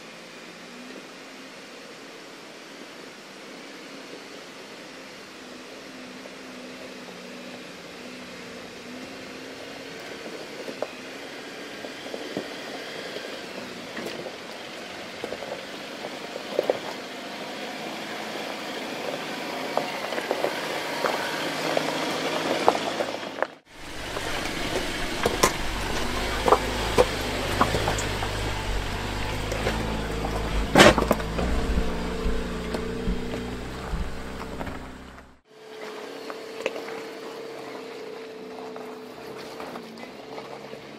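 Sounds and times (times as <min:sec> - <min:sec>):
low engine note: 0:23.7 - 0:35.4
stones crunching under tyres: 0:23.7 - 0:35.4.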